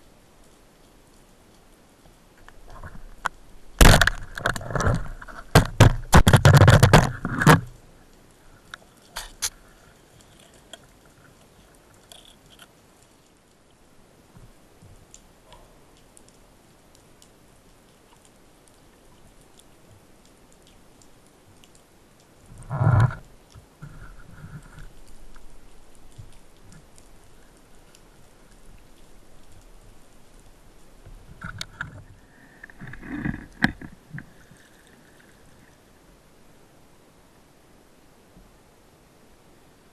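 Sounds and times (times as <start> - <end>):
faint underwater background: 0.0 - 39.9
spear knocking and clattering: 3.8 - 7.7.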